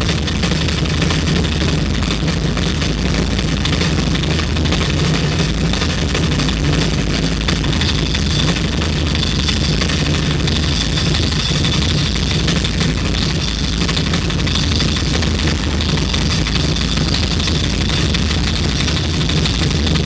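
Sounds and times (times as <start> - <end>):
distorted rock drum solo: 0.0 - 20.0.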